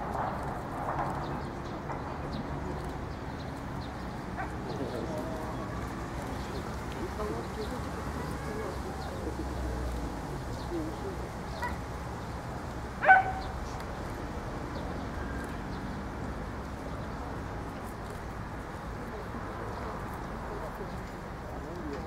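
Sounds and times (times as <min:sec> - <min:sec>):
steady background noise: 0:00.0 - 0:22.0
dog bark: 0:13.0 - 0:13.5.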